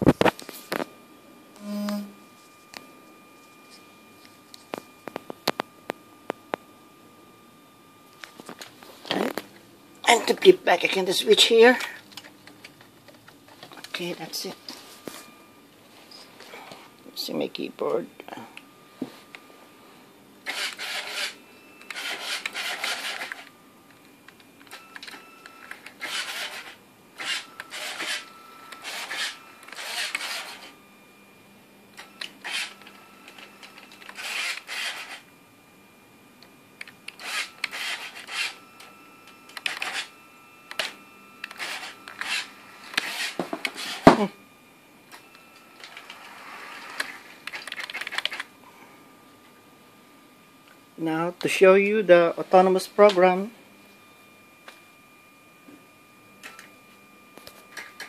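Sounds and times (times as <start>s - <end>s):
small electric motors whirring: 20.4s - 23.5s, 25.0s - 30.8s, 32.0s - 35.3s, 37.1s - 38.9s, 39.5s - 44.2s.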